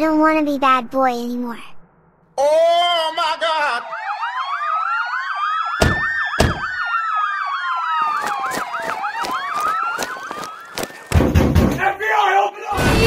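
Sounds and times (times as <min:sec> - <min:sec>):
police siren: 0:02.7 - 0:11.4
sharp thumps: 0:05.8 - 0:06.8, 0:08.3 - 0:11.8.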